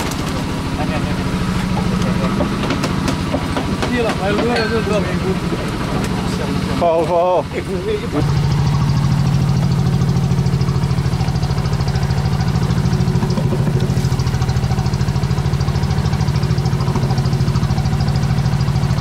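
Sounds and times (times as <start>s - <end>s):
boat engine throbbing: 0.0s - 19.0s.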